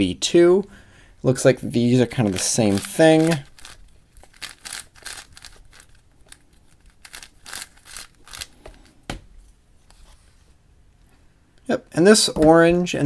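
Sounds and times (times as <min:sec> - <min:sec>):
plastic cube clacking and sliding: 0:02.1 - 0:09.0.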